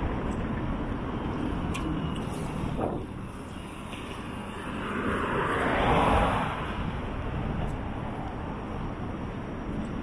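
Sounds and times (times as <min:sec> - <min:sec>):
background traffic noise: 0:00.0 - 0:10.0
car passing close by: 0:04.6 - 0:06.9.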